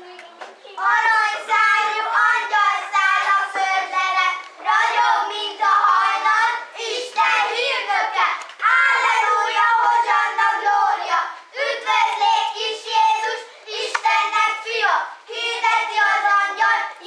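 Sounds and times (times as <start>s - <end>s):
children singing together: 0.6s - 17.0s.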